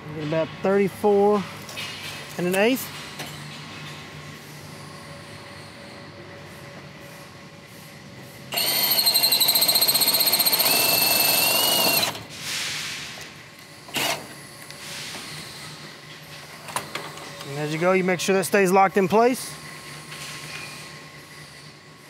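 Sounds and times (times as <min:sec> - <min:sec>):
cordless drill whining: 0:08.5 - 0:12.2.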